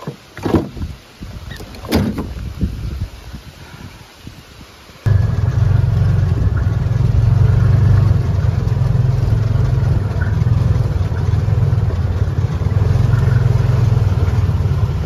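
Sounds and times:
rain beating on cab: 5.1 - 15.0
vehicle engine idling: 5.1 - 15.0.

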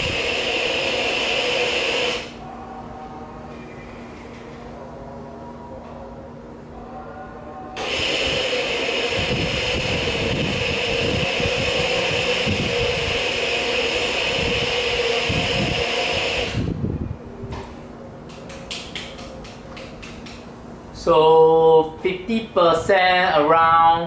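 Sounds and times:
machine humming and hissing: 0.0 - 18.2.

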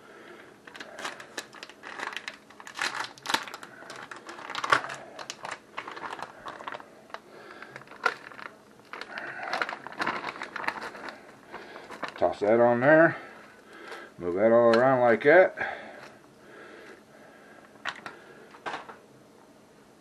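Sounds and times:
plastic pouch crinkling: 0.6 - 15.2.

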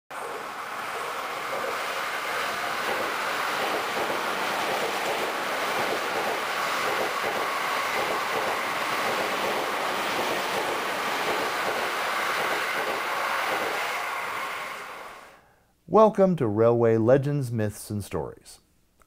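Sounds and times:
electric train running: 0.1 - 15.4.

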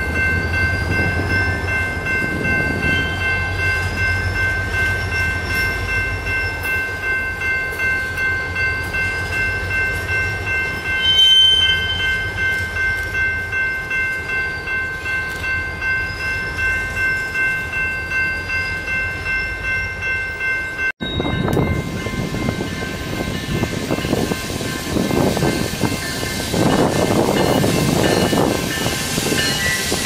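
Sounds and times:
low rumble of train cars: 0.0 - 30.0
high-pitched wheel squealing: 10.9 - 12.4
train wheels clacking on rails: 21.3 - 30.0.

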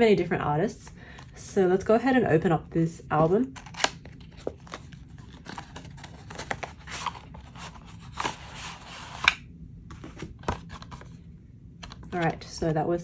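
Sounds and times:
cardboard box scraping and rustling: 4.3 - 9.3.

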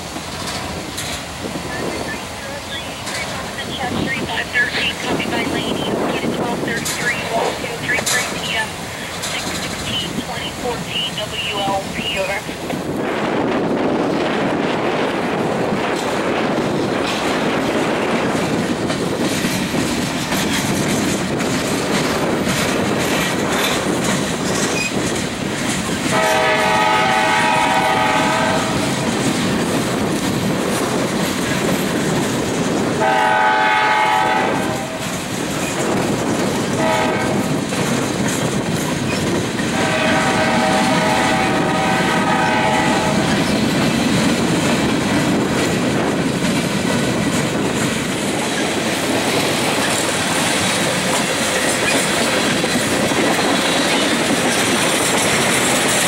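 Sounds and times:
freight train wheels clattering on rail: 0.0 - 56.0
locomotive air horn blasts: 26.1 - 28.9, 33.0 - 35.2, 36.8 - 37.4, 39.7 - 43.4.

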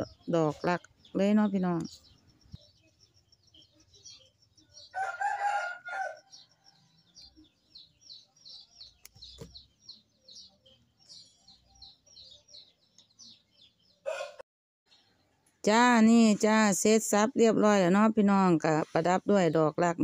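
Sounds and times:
rooster crowing: 4.9 - 6.5, 14.0 - 14.4.

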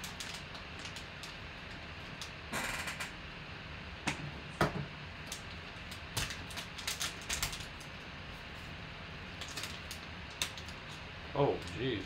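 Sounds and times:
foil wrapper crinkling: 0.0 - 2.3, 5.2 - 7.9, 9.3 - 12.0.

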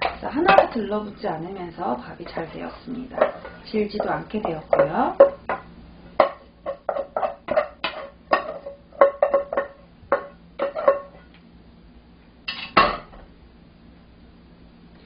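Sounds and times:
pot knocking against ceramic plate: 3.2 - 11.2.

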